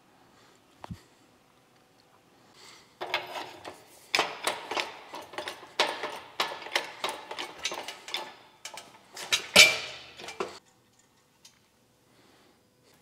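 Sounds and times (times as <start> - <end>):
hoist chain clicking and clinking: 3.0 - 10.6
sharp metal clank: 4.2 - 10.6.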